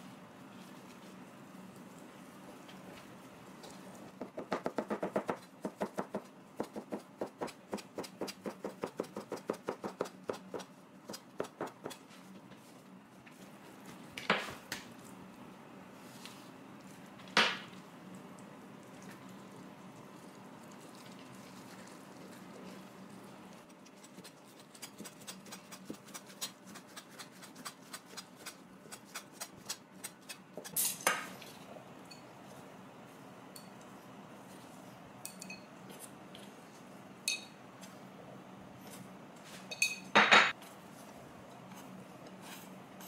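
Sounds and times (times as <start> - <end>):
knife chopping on plastic board: 4.2 - 10.6.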